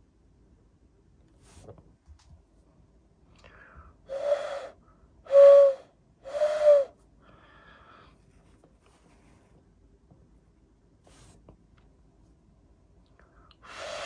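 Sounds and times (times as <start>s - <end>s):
breathy hand whistle notes: 4.1s - 7.0s.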